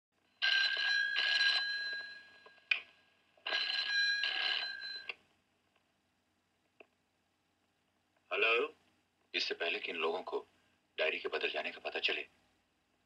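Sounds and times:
telephone ringing: 0.4s - 2.7s, 3.4s - 5.2s.

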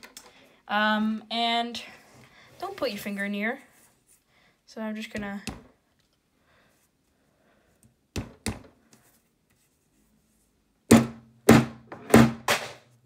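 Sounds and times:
hammer striking plastic on table: 10.9s - 12.8s.

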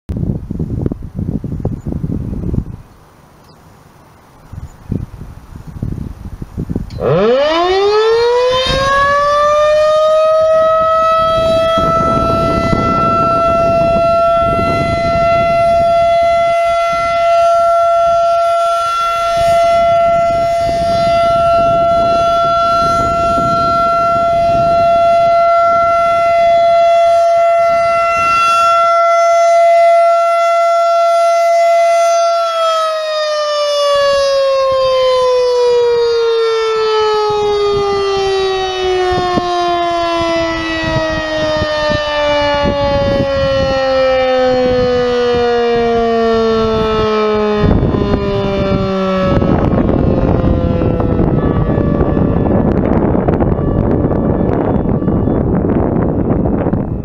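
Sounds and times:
warning siren wailing: 3.8s - 57.0s.

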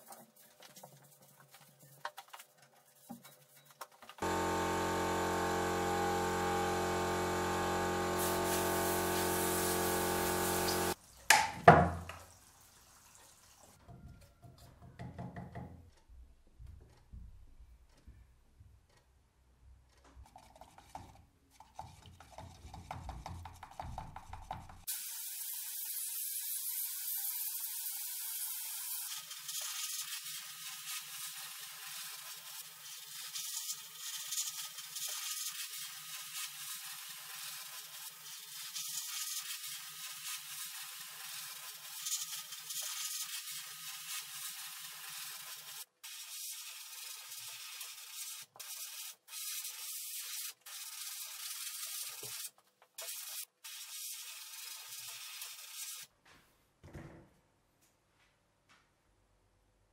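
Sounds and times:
spray gun hissing: 4.2s - 11.0s.

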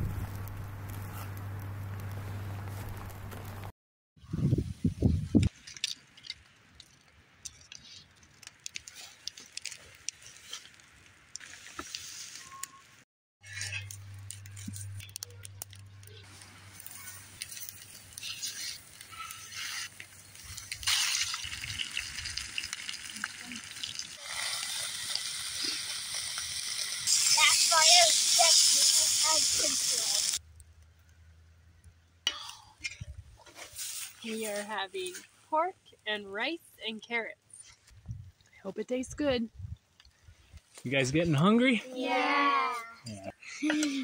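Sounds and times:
campfire crackling and popping: 0.0s - 3.7s, 5.3s - 12.4s, 13.5s - 36.2s, 36.8s - 42.5s
pork sizzling in skillet: 16.3s - 30.4s.

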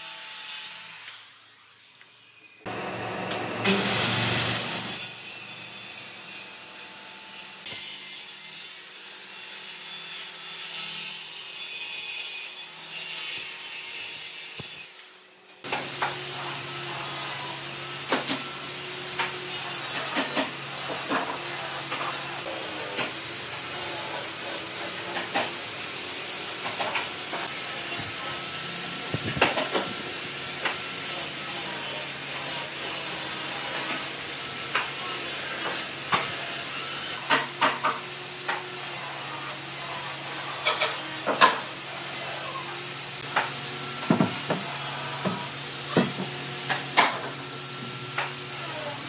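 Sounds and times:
workshop hiss: 12.8s - 49.0s.

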